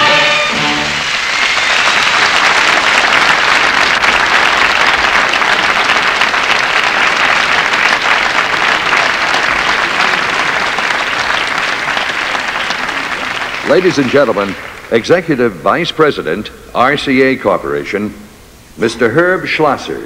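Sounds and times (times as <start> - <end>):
studio audience applauding: 0.0 - 15.4.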